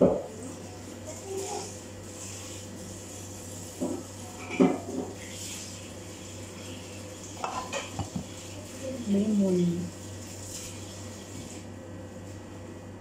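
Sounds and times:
bowls knocking and clattering: 7.4s - 8.4s.

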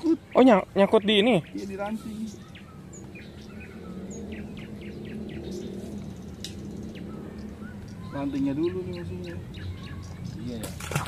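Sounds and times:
birds chirping: 0.0s - 11.0s
fish thrashing in water: 10.6s - 11.0s.

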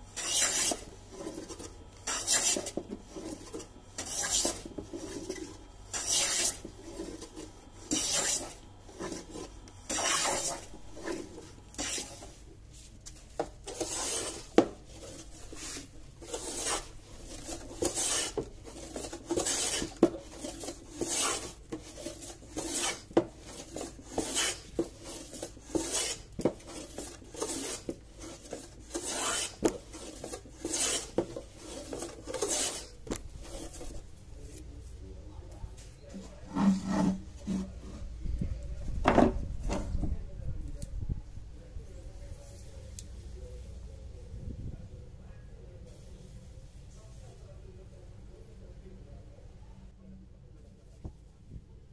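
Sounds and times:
hand plane scraping wood: 0.2s - 12.3s, 13.7s - 34.0s, 36.5s - 37.8s.

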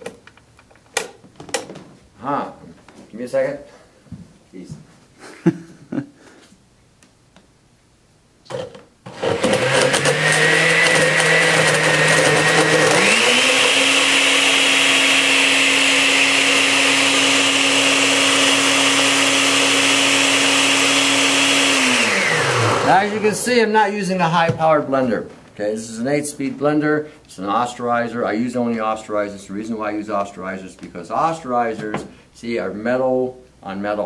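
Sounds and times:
blender running: 9.0s - 23.2s.

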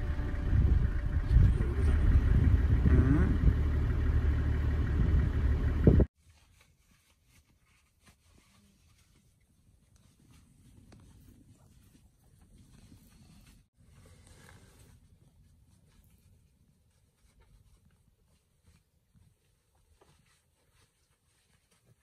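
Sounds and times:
vehicle engine rumbling: 0.0s - 6.1s.

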